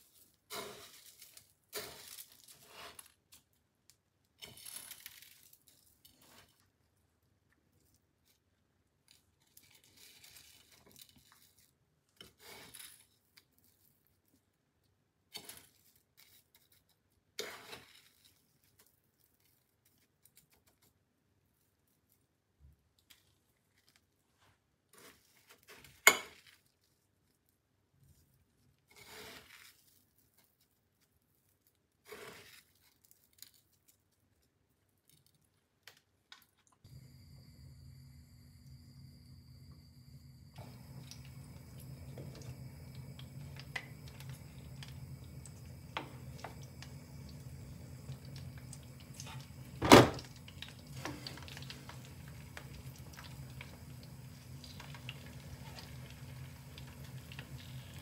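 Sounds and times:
crunchy rustles of crumb coating: 0:00.0 - 0:36.8, 0:40.9 - 0:58.0.

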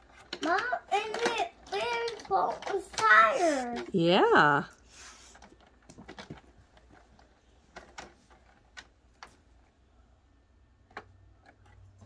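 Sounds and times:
toy cars clicking on plastic track: 0:00.0 - 0:04.0.

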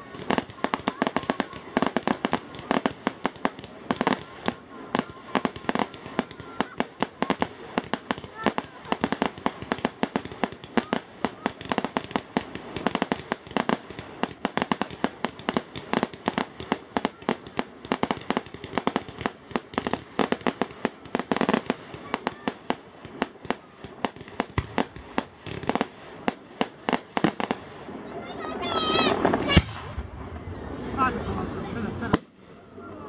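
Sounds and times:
fireworks cracking and banging: 0:00.0 - 0:33.0.

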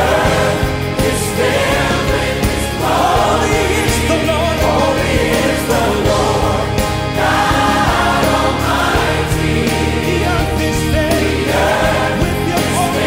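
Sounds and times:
choir singing worship song: 0:00.0 - 0:13.0
instrumental backing: 0:00.0 - 0:13.0.

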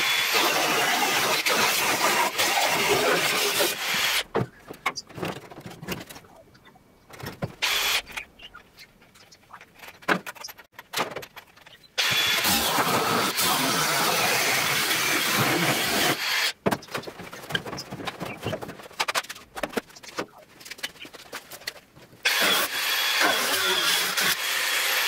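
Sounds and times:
angle grinder cutting steel: 0:00.0 - 0:04.2, 0:12.0 - 0:16.5, 0:22.3 - 0:25.0.

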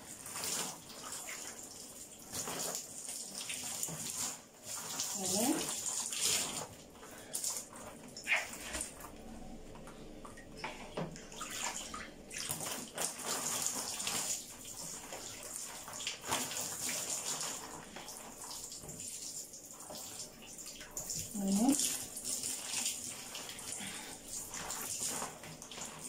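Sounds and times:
water pouring over hair: 0:00.0 - 0:09.2, 0:09.8 - 0:26.0.

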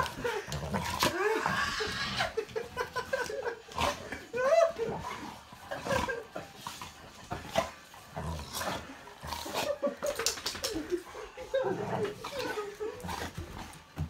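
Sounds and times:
dogs whining: 0:00.0 - 0:02.6.

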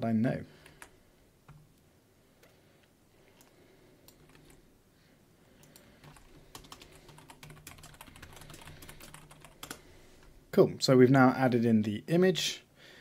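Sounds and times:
faint keyboard typing: 0:00.5 - 0:01.8, 0:03.3 - 0:04.7, 0:05.5 - 0:10.3.

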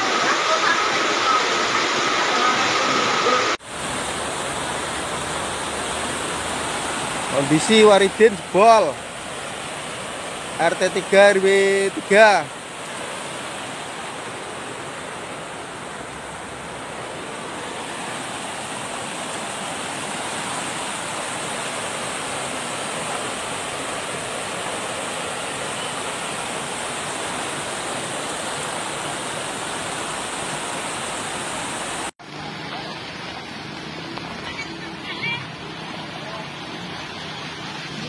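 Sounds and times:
floodwater rushing: 0:00.0 - 0:38.0.

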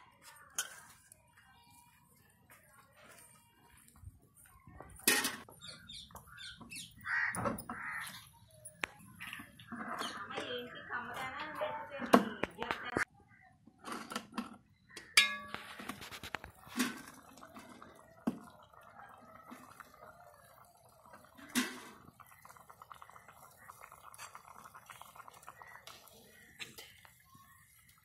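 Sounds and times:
pot lid metallic clank: 0:15.2 - 0:15.8
soup simmering crackle: 0:15.6 - 0:28.0.

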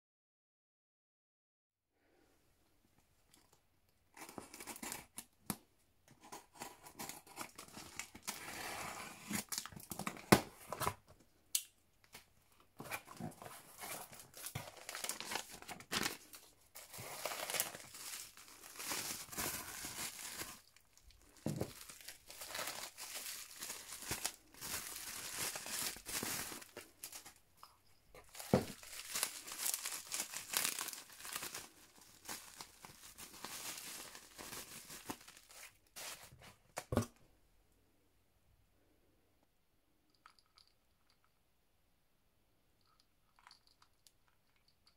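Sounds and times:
bubble wrap crinkling: 0:12.8 - 0:27.4, 0:28.1 - 0:36.8.

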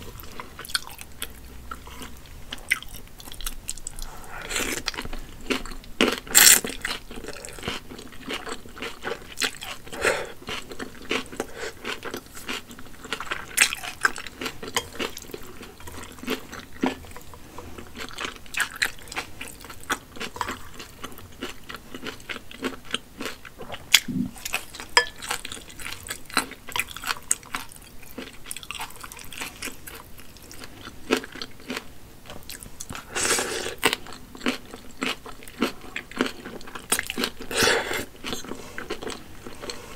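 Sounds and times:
wet chewing: 0:00.1 - 0:39.9.

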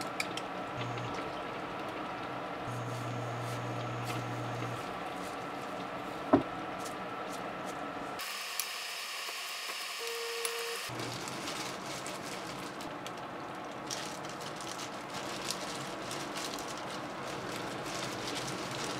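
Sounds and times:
room noise: 0:02.6 - 0:11.8.

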